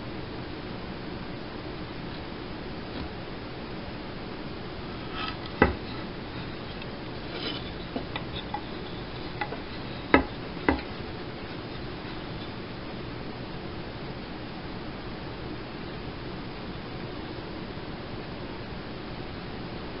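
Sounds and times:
steady hiss: 0.0 - 20.0
wood knocking on tabletop: 5.5 - 6.0, 7.4 - 11.0.

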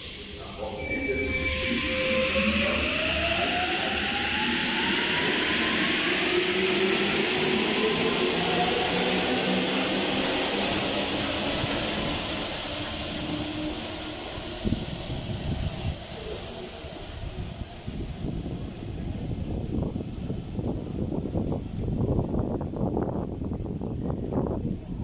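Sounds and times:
rush of train tyres: 0.0 - 25.0
traction motors whining: 0.6 - 17.8.

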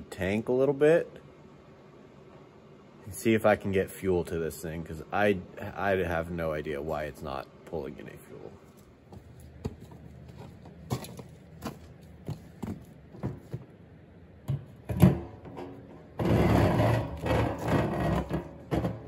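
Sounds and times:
hose scraping out of tank: 16.2 - 19.0.

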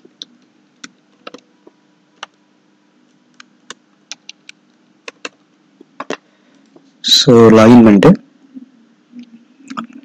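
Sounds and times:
faint steady hum: 0.0 - 10.0
keyboard keys clicking: 0.2 - 1.4, 3.4 - 5.4.

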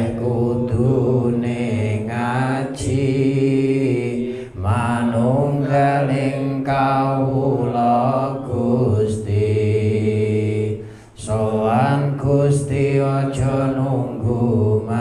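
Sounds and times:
man chanting into microphone: 0.0 - 15.0
short breath: 10.8 - 11.2.

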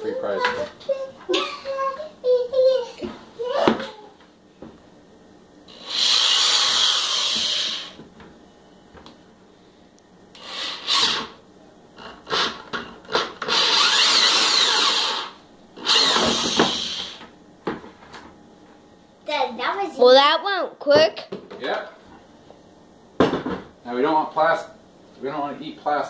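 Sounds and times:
power drill cutting plastic: 5.7 - 8.0, 10.4 - 11.4, 12.2 - 17.2.

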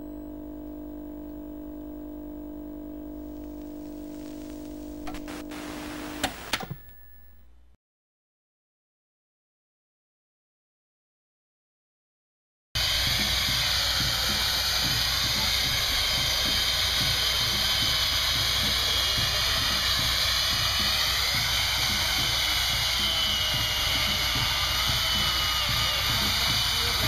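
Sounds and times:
chainsaw cutting ice: 12.8 - 27.0.

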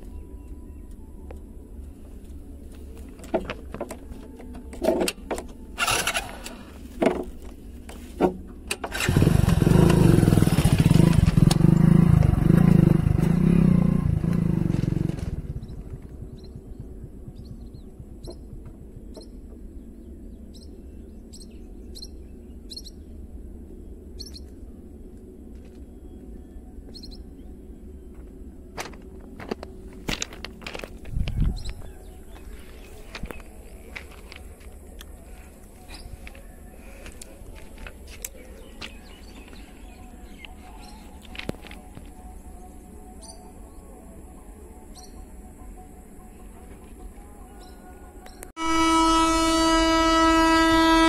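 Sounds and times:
motorcycle engine running: 8.4 - 20.1.

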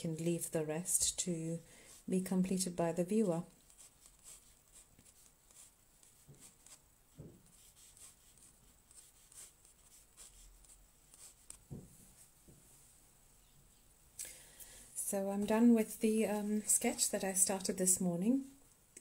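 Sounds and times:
pen scratching on paper: 3.1 - 11.7
soft knock: 7.2 - 7.5, 11.7 - 12.6.

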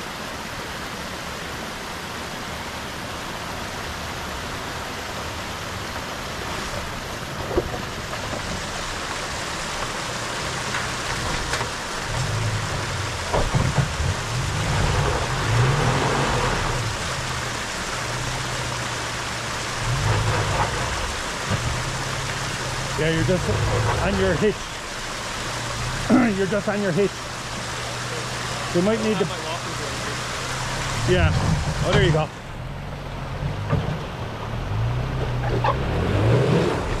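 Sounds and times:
creek rushing: 0.0 - 37.0
truck engine at low revs: 6.2 - 37.0.

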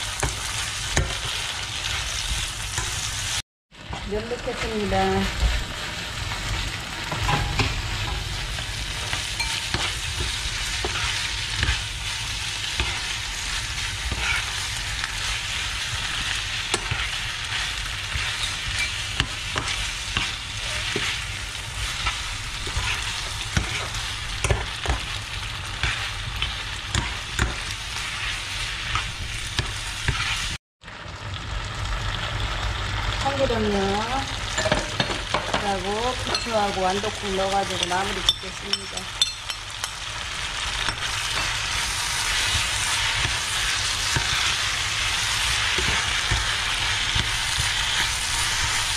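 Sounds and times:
noodles sizzling in a frying pan: 0.0 - 48.9
metal spoon scraping a pan: 7.1 - 30.6.

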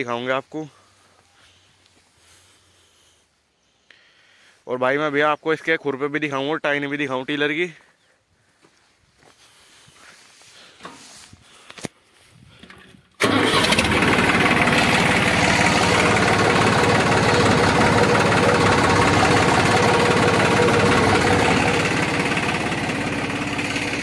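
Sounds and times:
tractor diesel engine running: 12.6 - 24.0.

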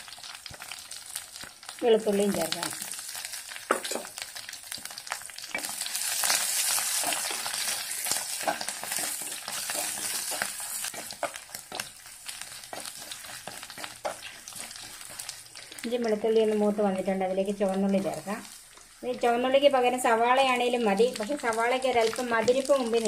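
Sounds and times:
food sizzling in oil: 0.0 - 23.0
spatula scraping and tapping pot: 8.3 - 12.0, 12.7 - 15.3.

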